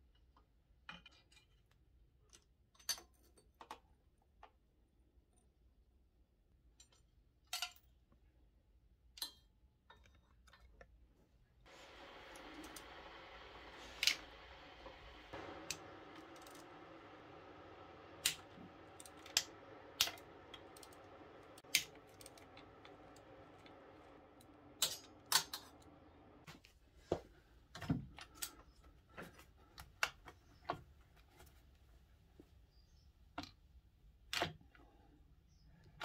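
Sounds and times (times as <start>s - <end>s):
faint steady hum: 9.9s - 36.0s.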